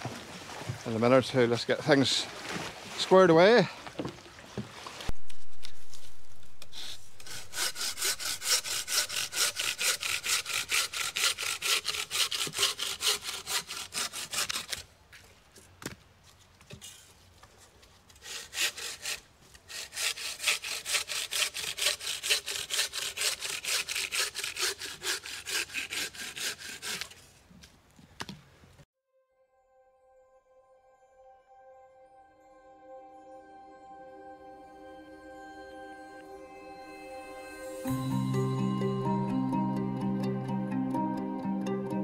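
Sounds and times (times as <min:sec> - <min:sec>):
bow saw cutting log: 0:05.2 - 0:14.9, 0:18.1 - 0:27.4.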